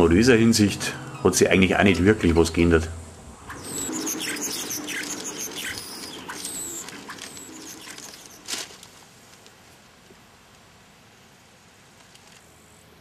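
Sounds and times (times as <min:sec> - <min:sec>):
small birds chirping: 0:03.4 - 0:08.5.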